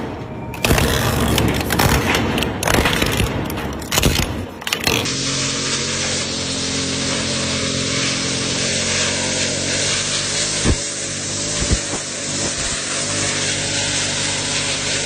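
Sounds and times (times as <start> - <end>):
string trimmer cutting grass: 0.6 - 15.0.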